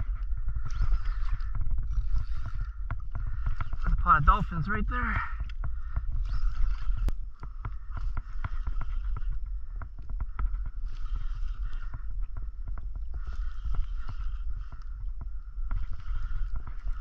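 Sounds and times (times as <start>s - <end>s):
fishing reel whirring: 0.0s - 17.0s
water and wind rumble: 0.0s - 17.0s
small irregular clicks and taps: 5.4s - 17.0s.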